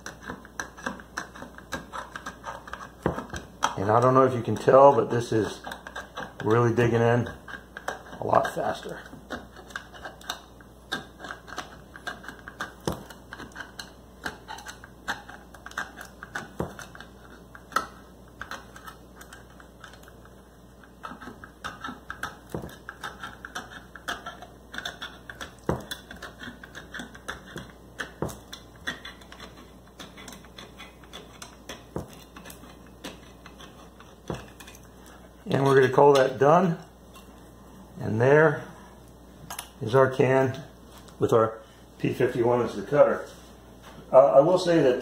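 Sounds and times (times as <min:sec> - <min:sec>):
can opener cutting a can: 0:00.0 - 0:34.8.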